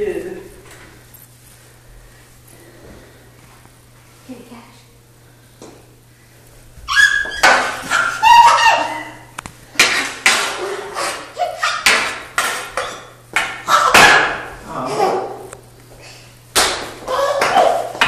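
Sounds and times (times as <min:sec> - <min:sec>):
toddler squealing and babbling: 0:06.9 - 0:09.2.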